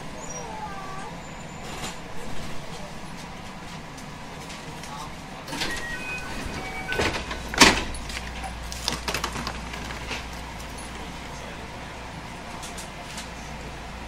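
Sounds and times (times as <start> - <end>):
train doors thumping shut: 1.6 - 3.6, 4.5 - 10.4
electronic door chime: 5.5 - 7.4.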